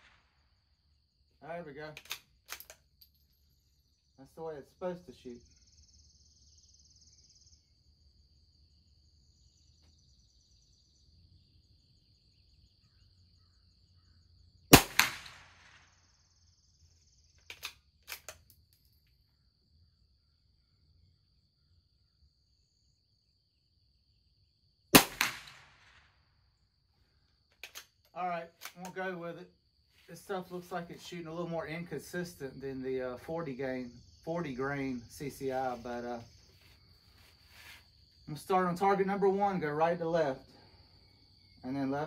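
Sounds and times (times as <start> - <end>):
rifle bolt clicks: 2.0 - 2.8, 17.4 - 18.6, 27.6 - 27.9
rifle shots with echo: 14.7 - 16.0, 24.9 - 26.2
high insect buzz: 33.4 - 39.2, 40.7 - 41.7.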